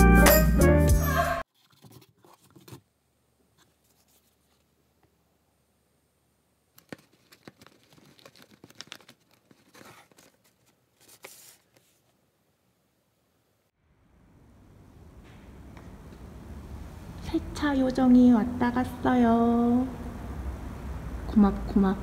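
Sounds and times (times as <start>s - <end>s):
tape being handled: 6.7s - 12.1s
paper gift bag rustling: 6.8s - 12.0s.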